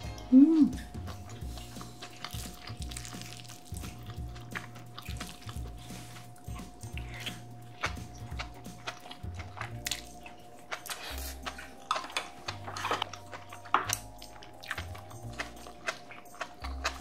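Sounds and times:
chewing and crunching: 0.0 - 17.0
soft background music: 0.0 - 17.0.

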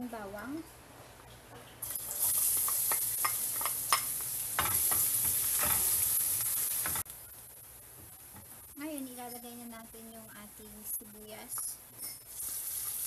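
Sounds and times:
garlic sizzling in oil: 1.8 - 10.4, 11.4 - 13.0.

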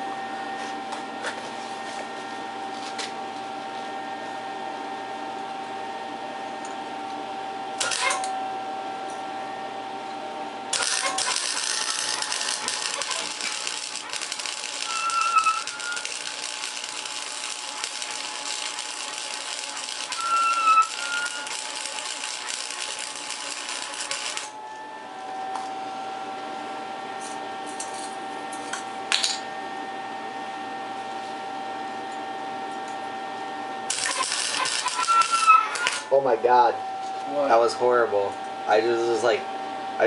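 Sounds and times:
steady hum: 0.0 - 40.0
welder arc crackling: 7.8 - 8.2, 10.7 - 24.5, 33.9 - 36.2.

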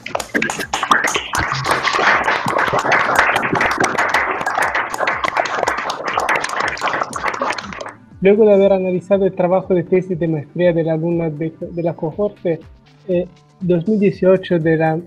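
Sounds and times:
people clapping: 0.0 - 8.0.

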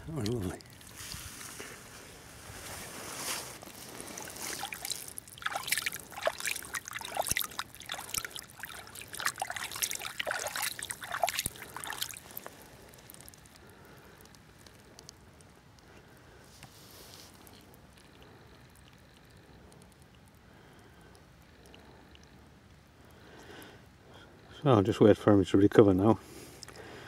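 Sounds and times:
shallow water splashing: 0.0 - 22.3.

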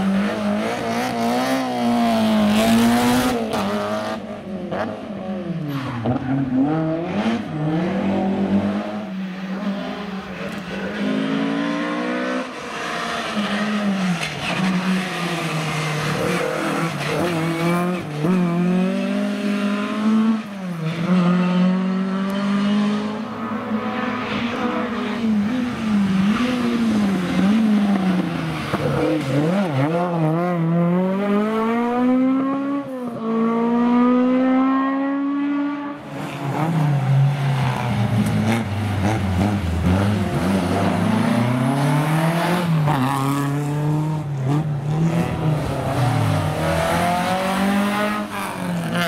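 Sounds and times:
rally car engines revving: 0.0 - 49.0.

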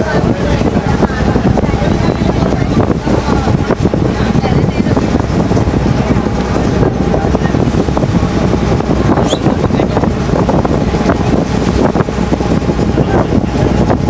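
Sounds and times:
ferry engine droning: 0.0 - 14.0
wind noise on microphone: 0.0 - 14.0.

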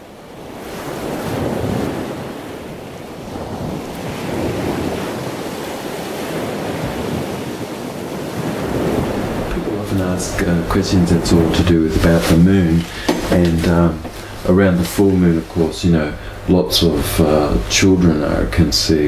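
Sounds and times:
surf rushing: 0.0 - 19.0
wind buffeting microphone: 0.4 - 14.2.

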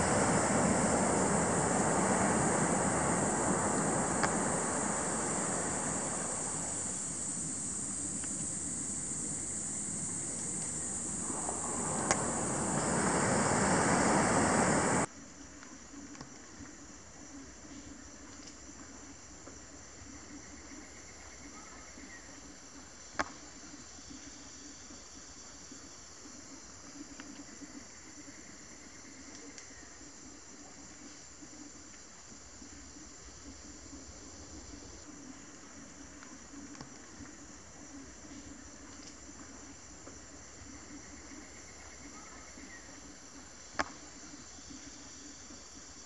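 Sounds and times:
high-pitched insect chorus: 0.0 - 15.1
low rushing noise: 0.0 - 15.1
insects droning: 0.0 - 17.6, 18.4 - 46.0.

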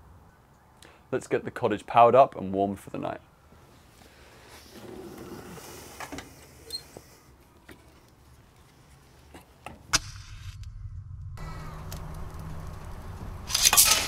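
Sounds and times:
low hum: 9.9 - 14.0.

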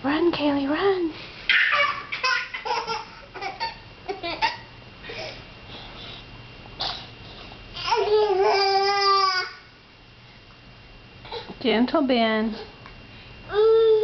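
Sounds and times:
baby laughing: 1.5 - 5.3.

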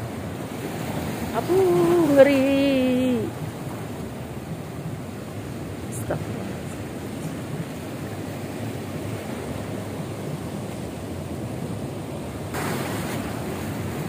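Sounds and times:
surf breaking against rocks: 12.5 - 14.0.

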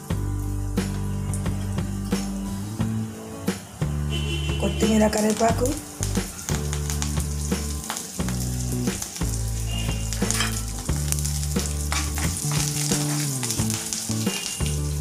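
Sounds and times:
low background music: 0.0 - 15.0
spices sizzling in hot oil: 0.0 - 15.0
spatula stirring: 9.2 - 14.9.

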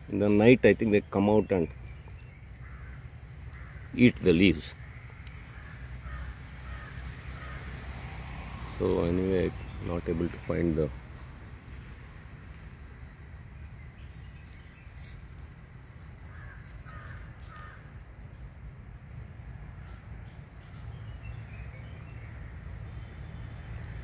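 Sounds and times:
caw-like bird calls: 2.5 - 7.9, 16.2 - 17.9
plant stems rustling: 14.0 - 17.7.

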